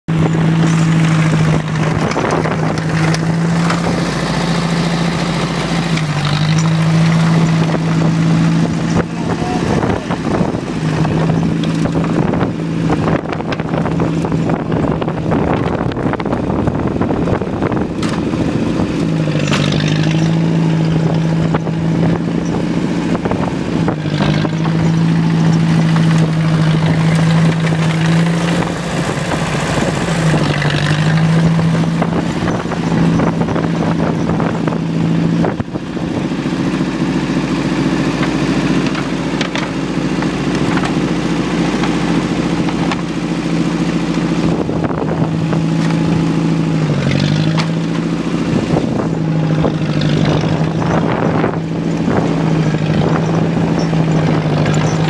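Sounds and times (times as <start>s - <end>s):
small engine running: 0.1s - 55.0s.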